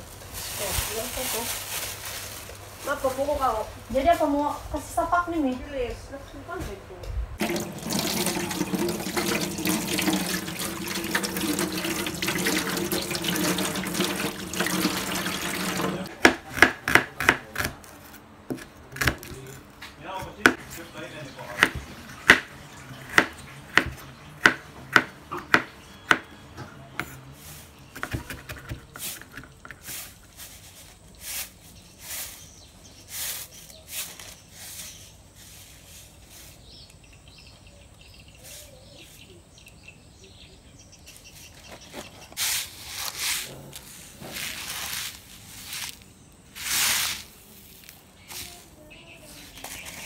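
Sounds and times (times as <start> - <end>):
rustling and scraping: 0.0 - 4.4, 27.0 - 37.0, 41.1 - 50.0
knife chopping on wooden board: 16.1 - 17.9, 21.6 - 22.5, 23.1 - 26.3.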